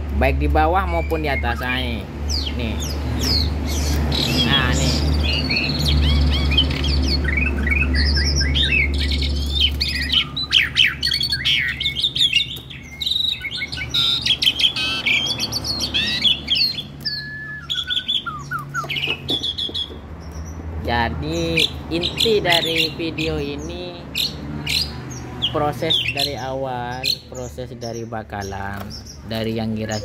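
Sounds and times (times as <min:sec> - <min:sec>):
starling chirps whistles and squawks: 0:00.6 - 0:20.6, 0:21.3 - 0:30.0.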